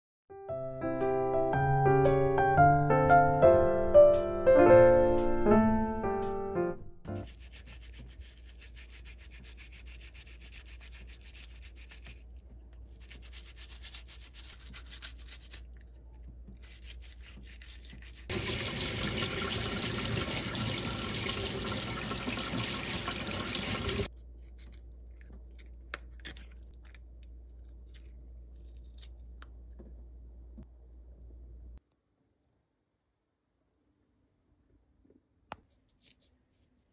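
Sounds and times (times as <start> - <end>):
piano music: 0.3 - 7.3
brush scrubbing shells: 7.1 - 18.5, 24.0 - 29.5, 35.6 - 36.9
tap water rushing: 18.3 - 24.1.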